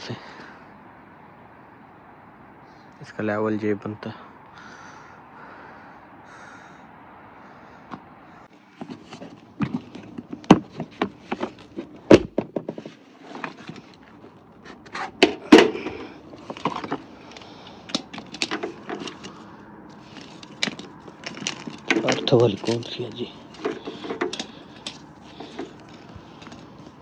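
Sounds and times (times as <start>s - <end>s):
tools knocking clanking and scraping: 8.7s - 19.4s, 20.0s - 27.0s.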